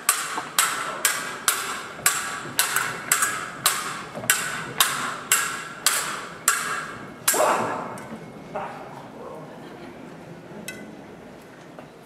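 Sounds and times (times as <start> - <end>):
sword blades clashing and ringing: 0.1 - 8.1.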